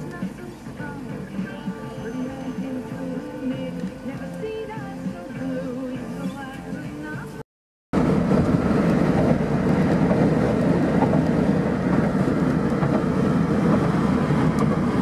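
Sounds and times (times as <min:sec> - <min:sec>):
music: 0:00.0 - 0:07.4
car road and wind noise: 0:08.0 - 0:15.0.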